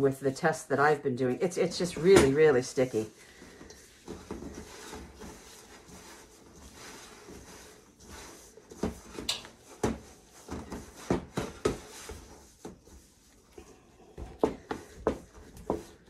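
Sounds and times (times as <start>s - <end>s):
hands squishing dough: 1.4s - 16.0s.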